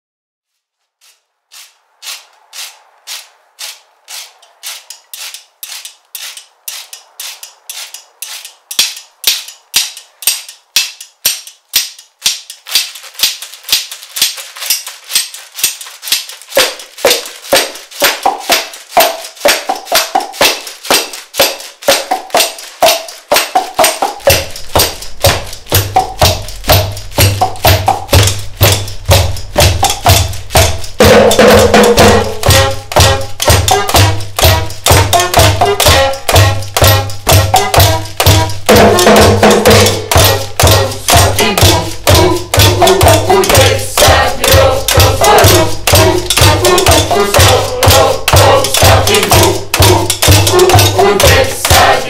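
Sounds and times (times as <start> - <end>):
slaps and clicks on objects: 8.7 - 28.9
djembe: 16.6 - 52.0.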